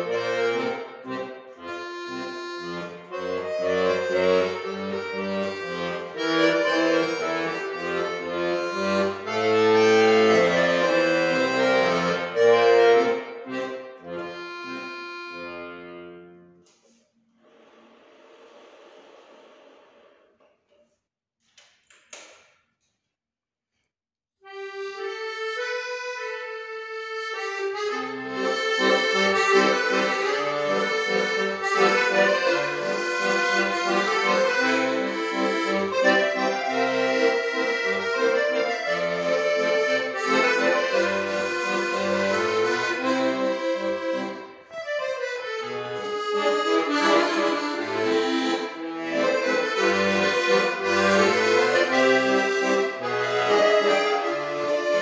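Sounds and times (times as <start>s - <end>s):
accordion playing: 0.0s - 20.0s, 24.4s - 55.0s.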